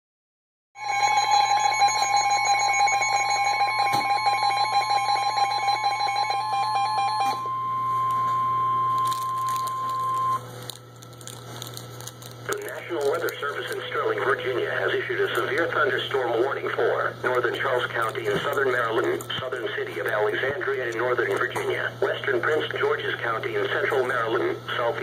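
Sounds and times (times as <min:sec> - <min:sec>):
rapid alarm beeping: 0:00.8 - 0:10.4, 0:12.6 - 0:16.6.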